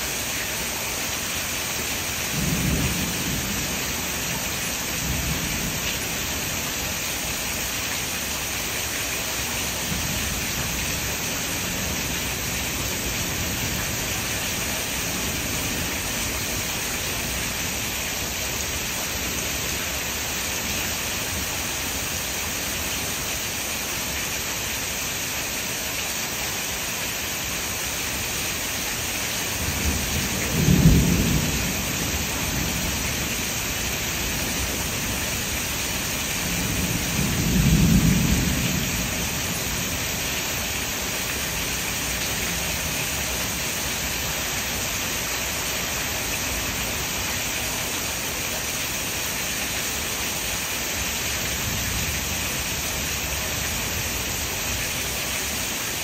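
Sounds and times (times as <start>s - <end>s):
heavy rain hissing: 0.0s - 56.0s
thunder rolling: 29.7s - 33.2s.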